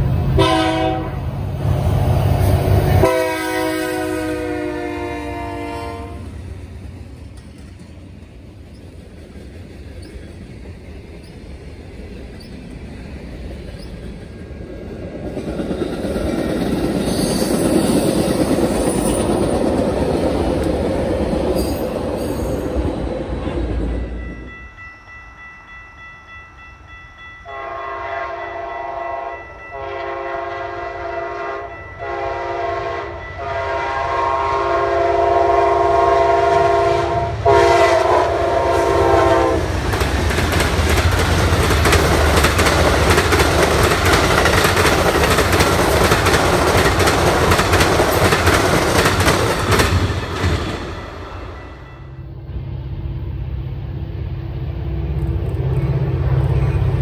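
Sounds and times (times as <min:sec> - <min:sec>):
diesel locomotives rumbling past: 0:00.0 - 0:57.0
train cars rushing by: 0:00.0 - 0:57.0
train horn: 0:00.3 - 0:01.3, 0:02.9 - 0:06.4, 0:27.4 - 0:39.8
crossing warning bells: 0:02.9 - 0:52.5.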